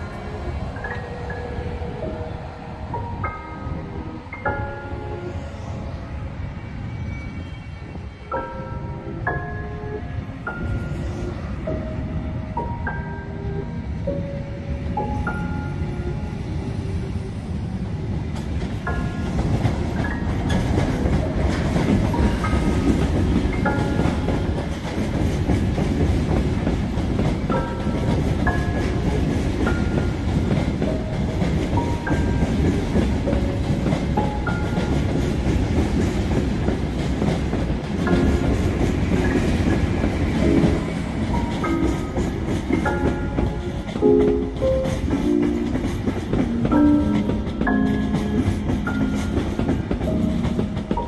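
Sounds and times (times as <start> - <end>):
soft piano music: 0.0 - 51.0
train wheels rumbling: 0.0 - 51.0.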